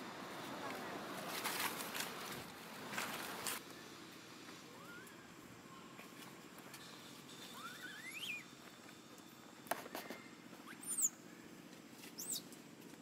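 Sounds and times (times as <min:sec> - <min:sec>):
steady low hum: 0:00.0 - 0:13.0
baby monkey high-pitched cries: 0:04.8 - 0:05.1, 0:07.5 - 0:08.4.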